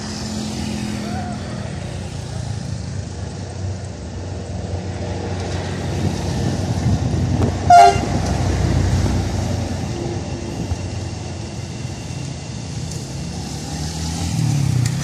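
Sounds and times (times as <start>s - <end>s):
diesel locomotive rumbling: 0.0s - 15.0s
train horn toot: 7.7s - 8.3s.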